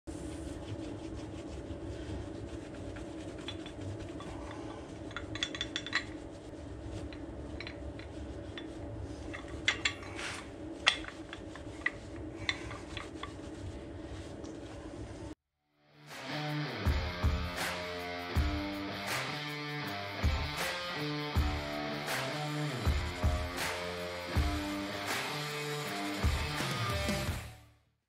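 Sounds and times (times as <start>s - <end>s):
towel rubbing metal part: 0.1s - 15.3s
steady low hum: 0.1s - 15.4s.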